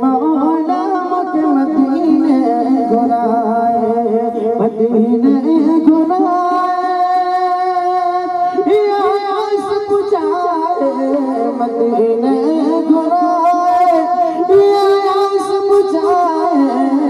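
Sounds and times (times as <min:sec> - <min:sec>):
man singing through microphone: 0:00.0 - 0:17.0.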